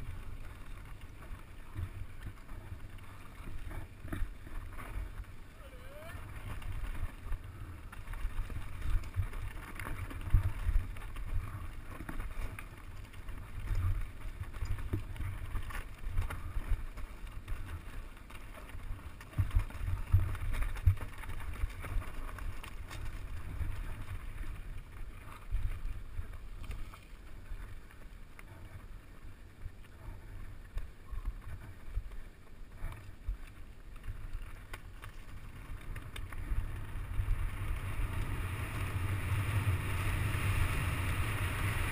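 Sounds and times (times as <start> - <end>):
tyres on dirt and stones: 0.0 - 41.9
wind rumble on microphone: 0.0 - 41.9
bike rattling and knocking: 6.3 - 26.0.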